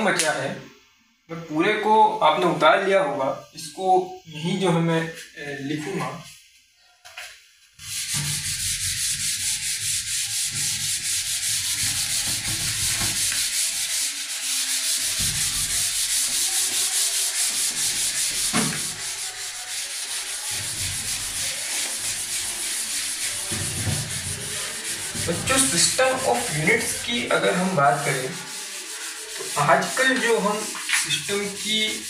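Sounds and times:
eraser scrubbing whiteboard: 0:07.8 - 0:32.0.

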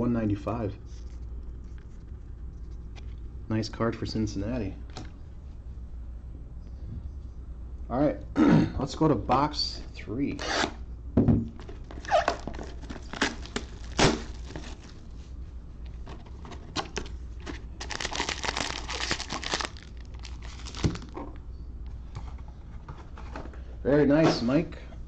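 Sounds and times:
packaging crinkling and tearing: 0:11.8 - 0:15.1, 0:16.8 - 0:21.2.

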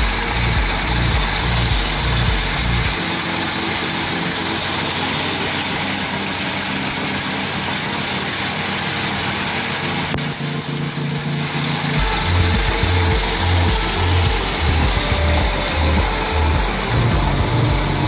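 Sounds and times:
blower engine humming: 0:00.0 - 0:18.0.

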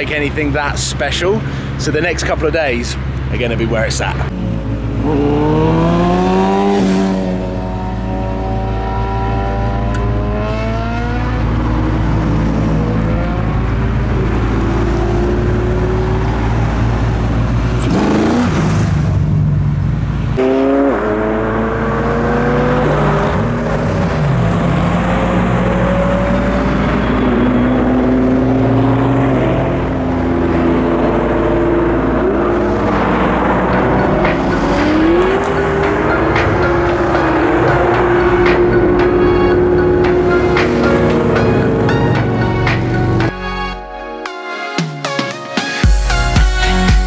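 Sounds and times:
idling traffic rumble: 0:00.0 - 0:05.7, 0:09.7 - 0:20.4, 0:23.4 - 0:43.3
car engines revving: 0:00.0 - 0:43.3.

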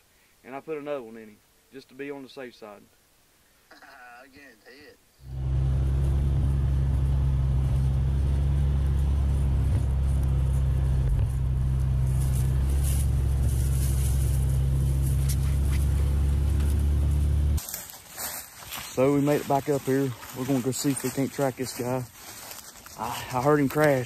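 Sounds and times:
utility vehicle engine droning: 0:05.2 - 0:17.6.

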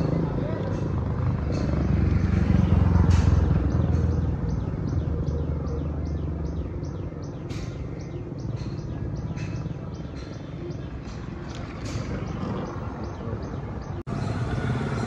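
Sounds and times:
bird chirping: 0:01.5 - 0:14.5.

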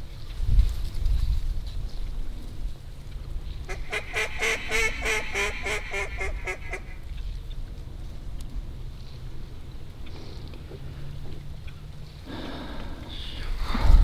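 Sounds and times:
mallard quacks: 0:03.7 - 0:07.0.

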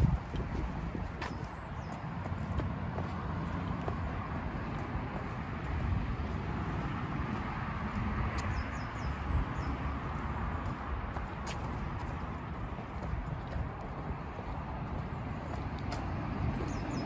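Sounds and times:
footsteps on pavement: 0:00.0 - 0:17.0
wind rumbling on microphone: 0:00.0 - 0:17.0.

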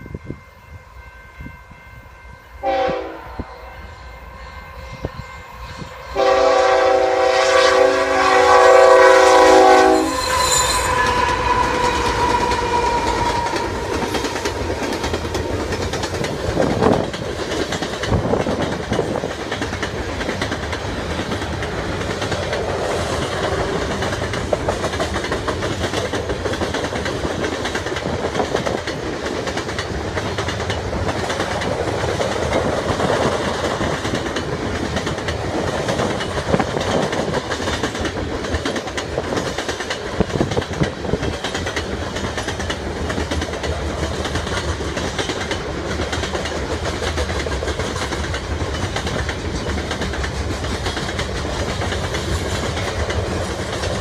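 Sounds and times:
locomotive air horn: 0:02.6 - 0:14.1
train wheels clattering and rumbling: 0:10.1 - 0:54.0.

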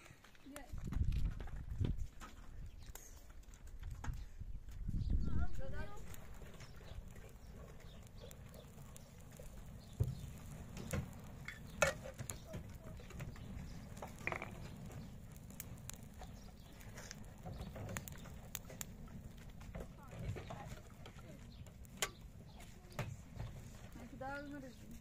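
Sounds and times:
steady low rumble: 0:04.8 - 0:22.6.

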